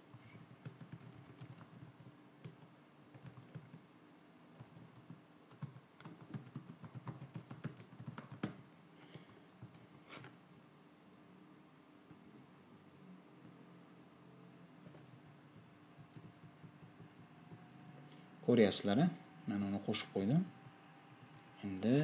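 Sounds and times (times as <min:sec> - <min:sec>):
faint keyboard typing: 0:00.0 - 0:03.9, 0:04.6 - 0:10.4, 0:14.8 - 0:18.1.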